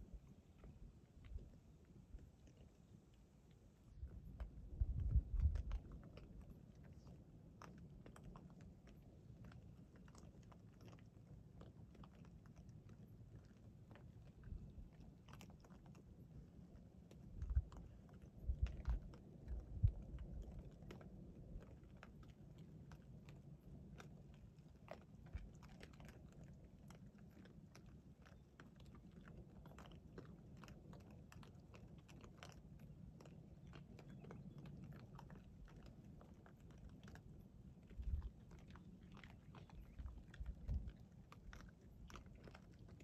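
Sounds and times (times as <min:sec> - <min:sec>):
hogs chewing and crunching: 0:00.0 - 0:43.0.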